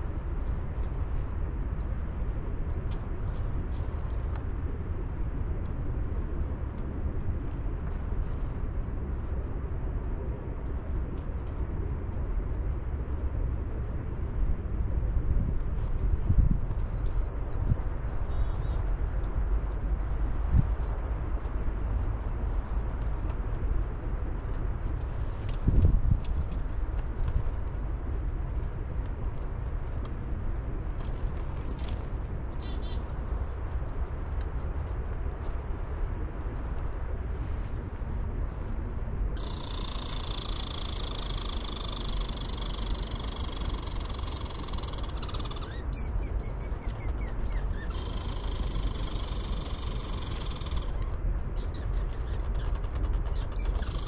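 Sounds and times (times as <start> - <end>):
low outdoor rumble: 0.0 - 54.0
chickadee calling: 39.4 - 54.0.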